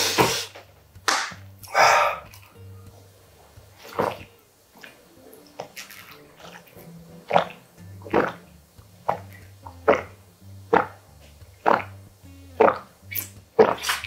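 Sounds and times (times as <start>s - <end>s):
background music: 0.0s - 14.0s
person gulping water: 11.6s - 12.0s, 12.6s - 14.0s.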